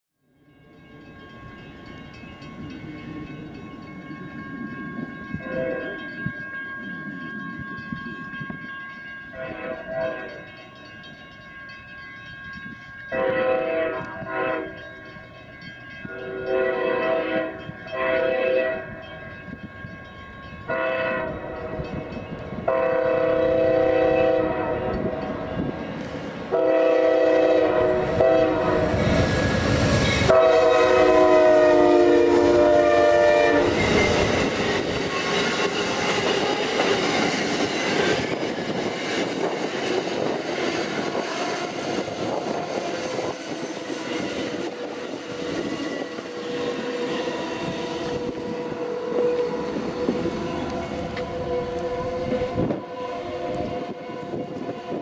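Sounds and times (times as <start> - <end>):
locomotive engine and wheels rushing: 0.6 - 55.0
locomotive air horn blasts: 5.4 - 6.0, 9.3 - 10.4, 13.1 - 14.8, 16.1 - 19.0, 20.7 - 21.8, 22.6 - 25.3, 26.5 - 29.0, 30.2 - 34.2, 46.2 - 55.0.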